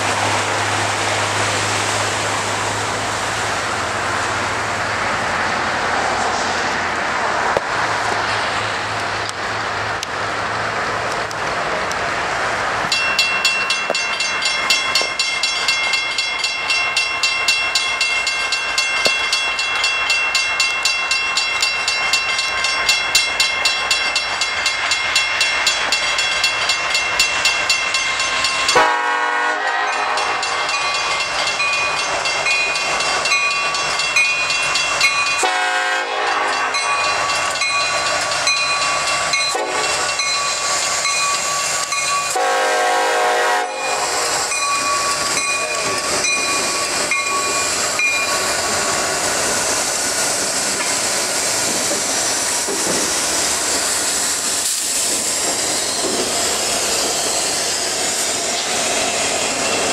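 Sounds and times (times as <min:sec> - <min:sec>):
diesel locomotives rumbling: 0:00.0 - 0:59.9
railroad crossing bell ringing: 0:12.8 - 0:59.9.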